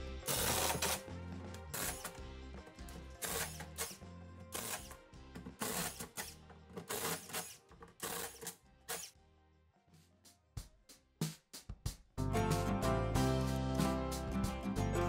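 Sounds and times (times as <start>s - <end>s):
music with drum beat: 10.5s - 15.0s.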